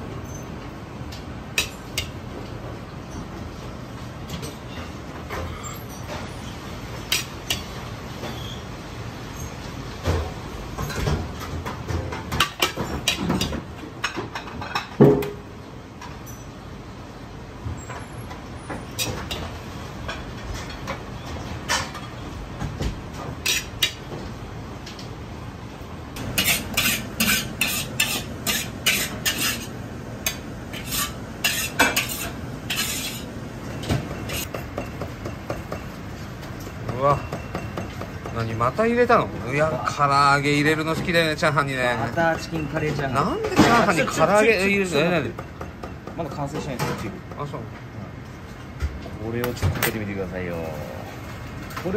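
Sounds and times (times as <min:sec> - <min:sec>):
low kitchen background: 0:00.0 - 0:51.9
steady background noise: 0:00.0 - 0:51.9
metal ladle scraping a wok: 0:26.4 - 0:33.3.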